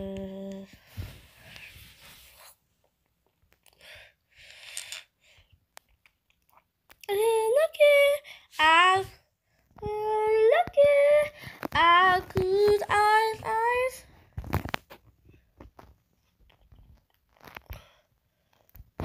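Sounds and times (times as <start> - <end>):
high-pitched voice singing wordlessly: 0.0 - 0.7, 7.0 - 9.2, 9.8 - 14.1
crunching and clicking noises: 14.3 - 19.0.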